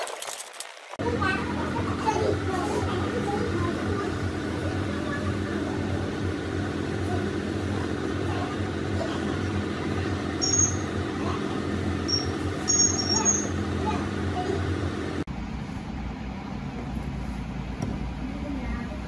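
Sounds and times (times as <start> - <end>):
mechanical drone: 0.0 - 15.4
short high-pitched chirps: 10.4 - 10.9, 12.0 - 13.6.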